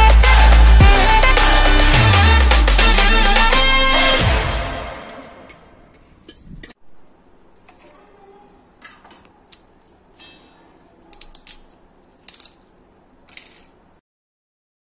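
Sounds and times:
background music: 0.0s - 5.8s
fried crisps crackling and snapping: 9.1s - 10.3s, 11.0s - 13.8s
clinks of steel plate: 10.2s - 10.8s.

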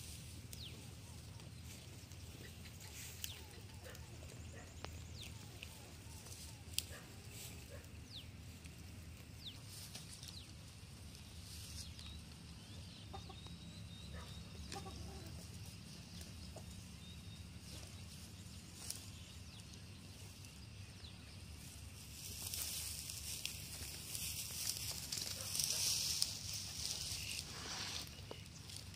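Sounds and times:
bird calls and clucks: 0.5s - 8.6s, 11.6s - 21.7s.

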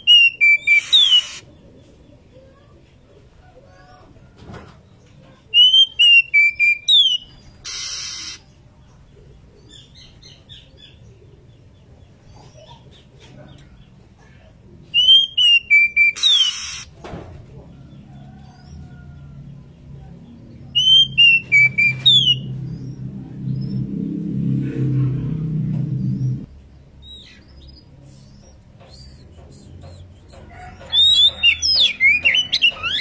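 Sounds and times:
bird harsh rasp: 0.6s - 1.5s, 7.6s - 8.6s, 16.0s - 17.0s.

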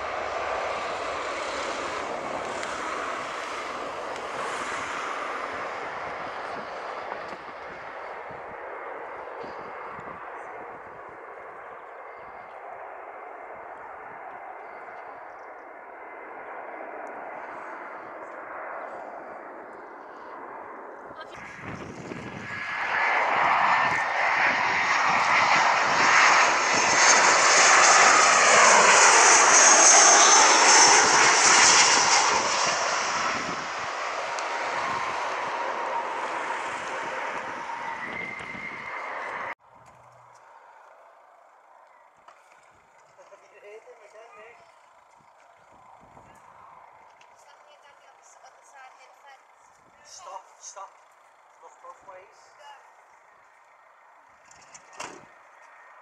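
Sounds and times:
aircraft engines roaring: 0.0s - 56.0s
thin whine: 12.0s - 42.6s.

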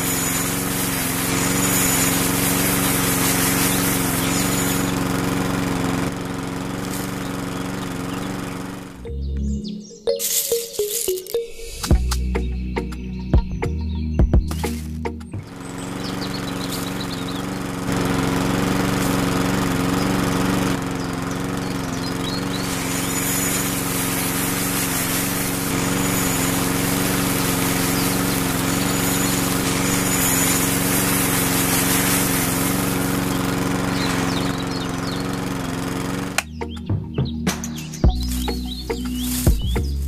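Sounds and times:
sand and grain sifting through mesh: 0.0s - 9.0s, 10.1s - 11.6s, 15.6s - 36.4s, 38.1s - 40.0s
small electric motor running: 0.0s - 9.1s, 15.4s - 36.5s, 38.2s - 40.0s.

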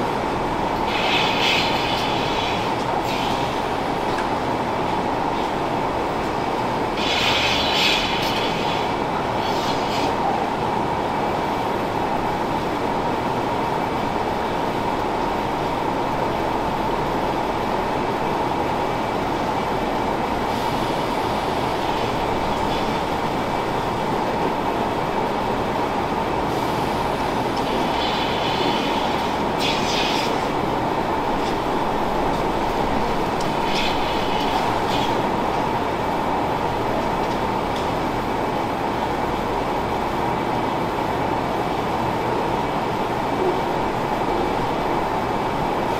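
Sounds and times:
milking machine drone: 0.0s - 4.2s, 6.8s - 11.0s, 20.1s - 37.9s
hissing air bursts: 0.7s - 4.1s, 6.9s - 10.3s, 26.5s - 31.6s, 33.4s - 35.7s.

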